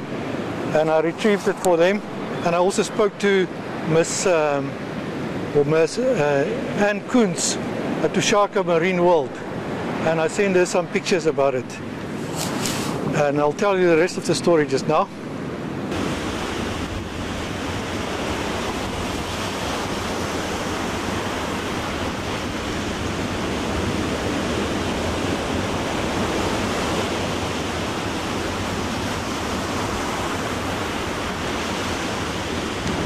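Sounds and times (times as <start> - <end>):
wind: 0.0 - 33.0
surf breaking on beach: 12.1 - 13.2, 15.9 - 33.0.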